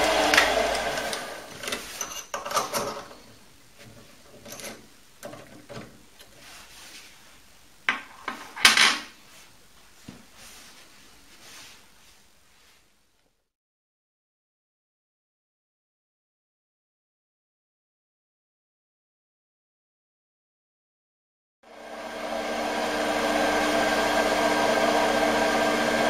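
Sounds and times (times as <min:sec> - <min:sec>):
lathe motor winding down: 0:00.0 - 0:01.5, 0:21.7 - 0:26.0.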